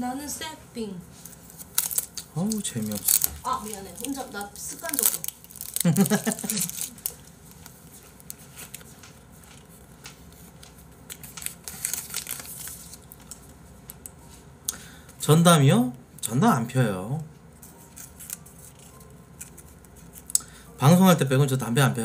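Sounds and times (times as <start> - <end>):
packaging crinkling and tearing: 1.2 - 14.1, 17.8 - 20.5.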